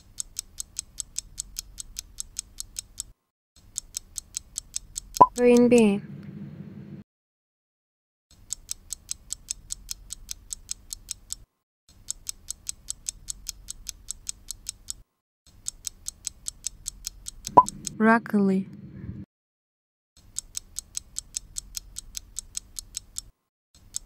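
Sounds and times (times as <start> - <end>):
fast clock ticking: 15.6 - 18.0.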